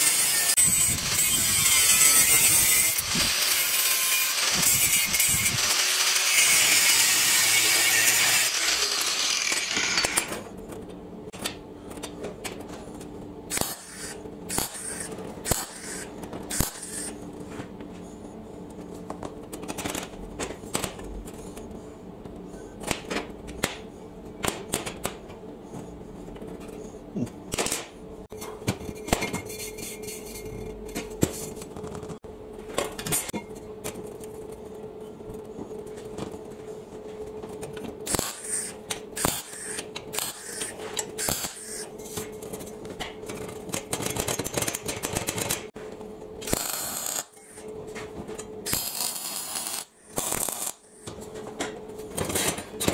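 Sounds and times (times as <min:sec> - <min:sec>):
angle grinder cutting steel: 0:00.0 - 0:10.3
steady low hum: 0:00.0 - 0:52.9.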